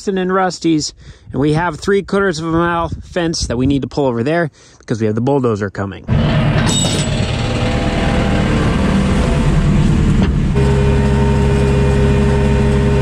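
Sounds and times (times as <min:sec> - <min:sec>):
loader engine running: 0:06.1 - 0:13.0.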